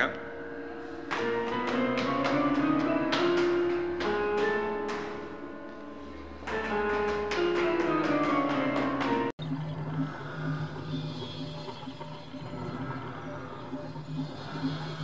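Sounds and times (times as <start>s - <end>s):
musical staircase piano notes: 0.0s - 9.6s.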